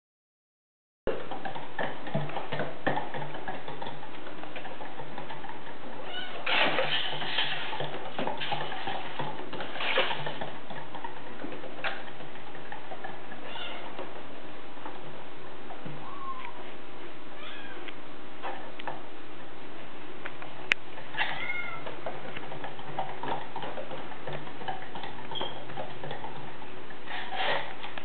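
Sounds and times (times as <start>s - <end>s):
cat wheel rolling: 1.1s - 16.8s, 20.4s - 28.0s
ticks and clicks: 21.8s - 27.0s.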